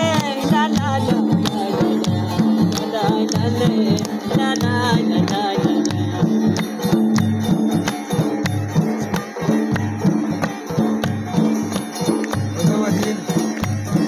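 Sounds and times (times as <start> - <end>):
drum beat: 0.0 - 14.0
hand claps: 0.0 - 14.0.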